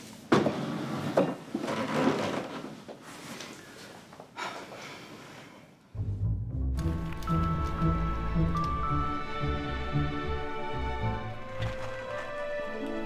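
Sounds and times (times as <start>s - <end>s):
chair scraping on floor: 0.3s - 3.5s.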